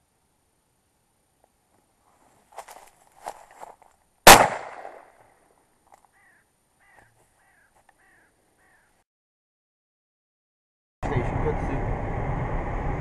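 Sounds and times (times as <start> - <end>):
loud shotgun shot: 4.2 - 5.1
crows cawing: 6.0 - 9.0
short falling bird calls: 6.0 - 9.0.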